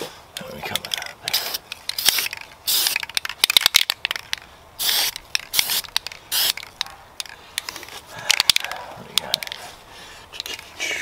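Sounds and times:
spray can hissing: 1.3 - 3.2, 4.8 - 6.7.

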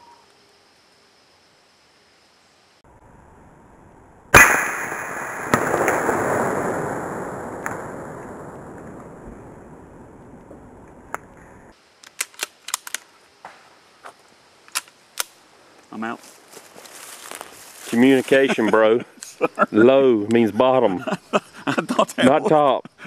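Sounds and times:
loud gunshot with rolling echo: 4.3 - 9.2
sharp crack: 4.3 - 13.1.

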